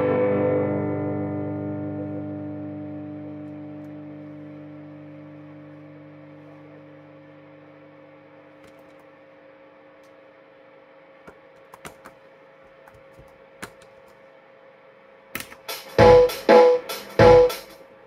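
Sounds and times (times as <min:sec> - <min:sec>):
electric guitar note ringing: 0:00.0 - 0:08.5
electric guitar strumming chords: 0:00.0 - 0:09.0, 0:15.7 - 0:17.7.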